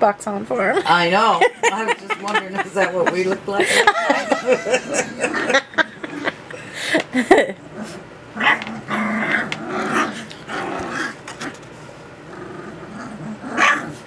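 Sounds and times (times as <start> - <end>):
puppies grumbling and growling: 3.8 - 14.0.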